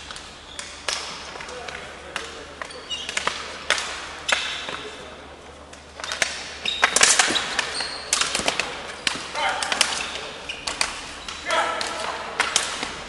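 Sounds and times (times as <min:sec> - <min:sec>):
hockey sticks clacking: 0:00.0 - 0:13.0
sneakers squeaking on court: 0:02.6 - 0:03.3, 0:06.0 - 0:09.1, 0:09.9 - 0:11.5.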